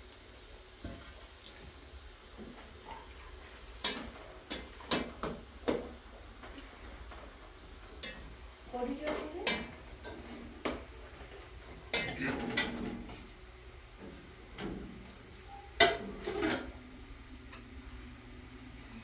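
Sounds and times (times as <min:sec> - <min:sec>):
metal pots and utensils clattering: 0:02.4 - 0:13.3, 0:14.0 - 0:16.8.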